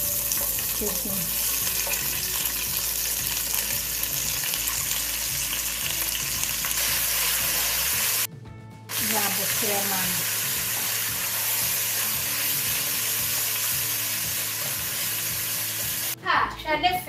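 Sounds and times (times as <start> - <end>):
onions sizzling in oil: 0.0 - 8.3, 8.9 - 16.2.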